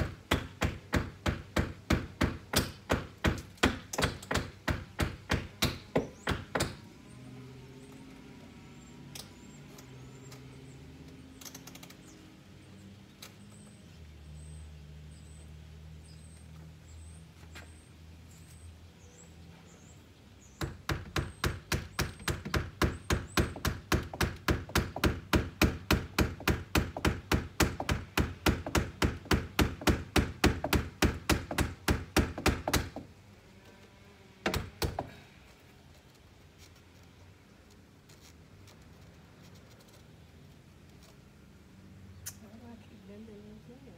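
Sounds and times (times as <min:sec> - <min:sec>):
hammer driving nails: 0:00.0 - 0:06.9, 0:20.6 - 0:33.1, 0:34.4 - 0:35.2.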